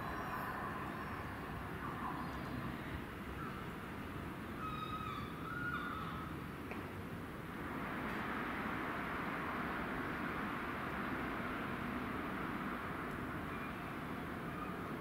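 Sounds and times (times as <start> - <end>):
diesel train rumble: 7.0 - 15.0.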